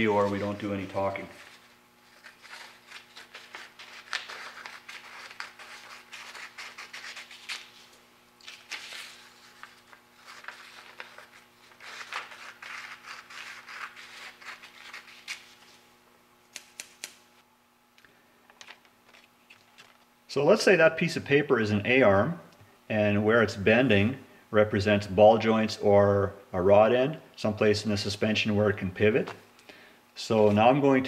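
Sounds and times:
scissors cutting paper: 0:02.1 - 0:07.8, 0:08.4 - 0:15.5.

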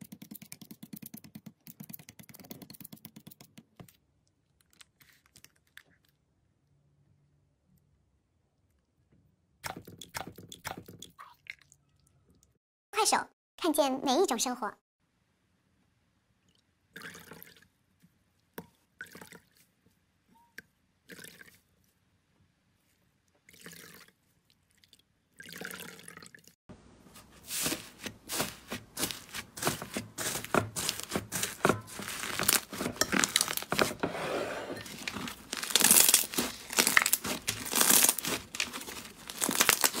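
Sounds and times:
wet sponge squishes: 0:00.0 - 0:06.3, 0:27.0 - 0:34.1, 0:34.8 - 0:40.0
slime crackling and popping: 0:28.3 - 0:33.8, 0:35.0 - 0:40.0.

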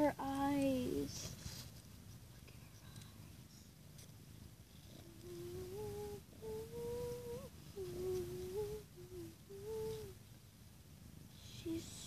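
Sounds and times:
girl humming a tune: 0:04.9 - 0:10.2, 0:11.4 - 0:12.0.

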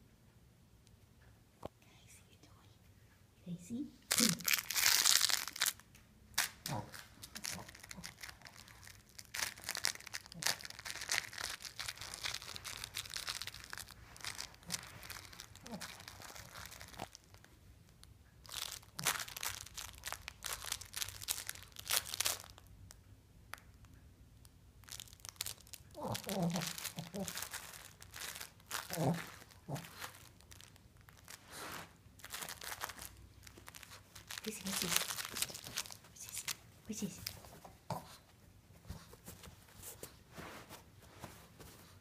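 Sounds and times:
crinkle paper toy crackling: 0:04.1 - 0:17.5, 0:18.4 - 0:22.7, 0:24.8 - 0:37.8.

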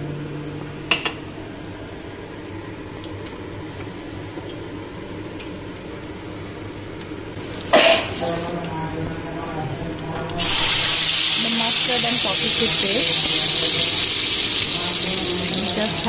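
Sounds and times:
oil hissing in wok: 0:10.4 - 0:16.0.

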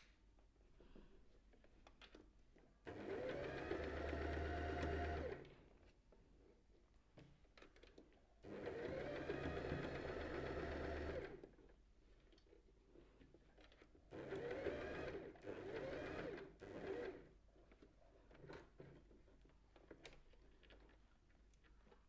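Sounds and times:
sewing machine stitching: 0:02.8 - 0:05.6, 0:08.4 - 0:11.5, 0:13.6 - 0:17.3.

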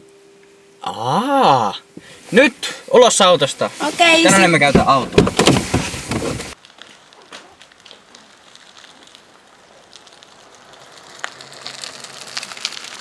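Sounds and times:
bicycle tyres hissing on wet road: 0:07.7 - 0:13.0.

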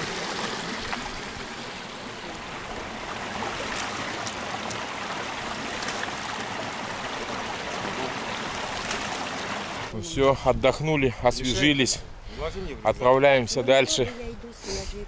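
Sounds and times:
water splashing by hand: 0:00.0 - 0:09.9
stream running over rocks: 0:00.0 - 0:10.3.

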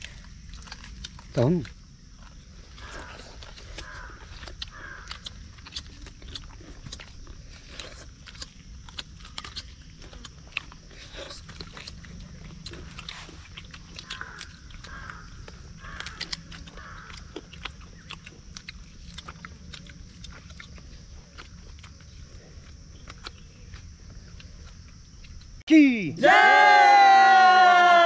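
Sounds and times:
chewing and biting meat: 0:00.0 - 0:25.6.

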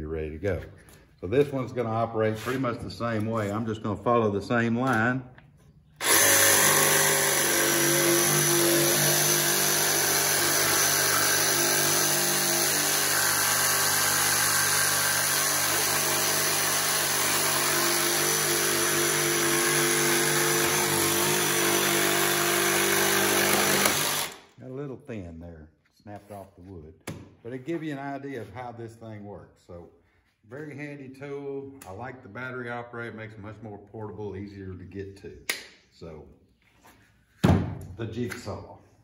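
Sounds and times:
jigsaw cutting a board: 0:06.0 - 0:24.4.

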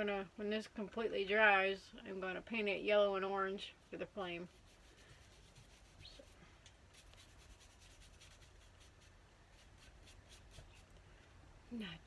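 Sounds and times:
low room hum: 0:00.0 - 0:12.0
paintbrush strokes: 0:03.9 - 0:11.0.

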